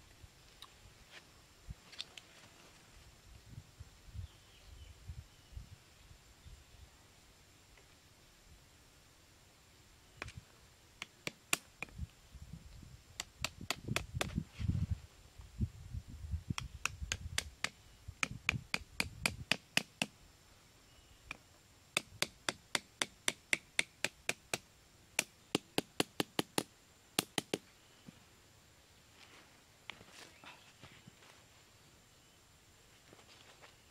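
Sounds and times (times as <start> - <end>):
machete tapping on bamboo: 11.0 - 12.0, 13.2 - 14.4, 16.5 - 20.2, 22.0 - 27.6.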